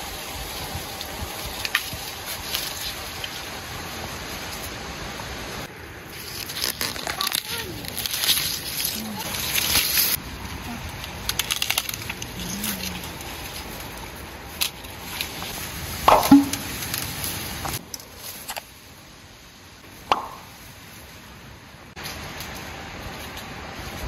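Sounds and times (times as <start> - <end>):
corn ears snapping off stalks: 6.2 - 10.2, 10.9 - 13.5.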